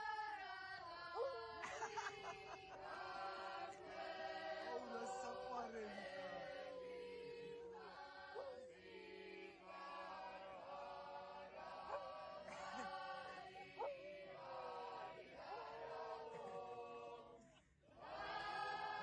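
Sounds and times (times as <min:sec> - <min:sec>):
boys' choir chanting: 0:00.0 - 0:17.2, 0:18.0 - 0:19.0.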